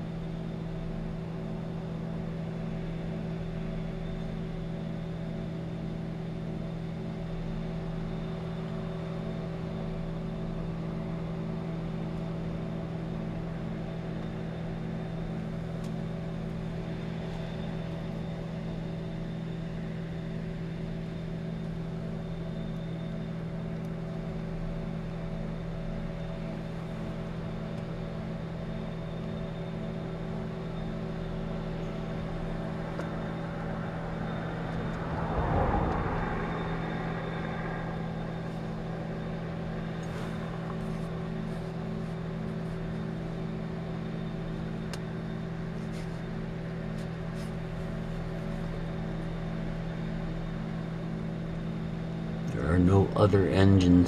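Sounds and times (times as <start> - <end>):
industrial engines humming: 0.0 - 54.0
vehicle passing: 33.4 - 39.5.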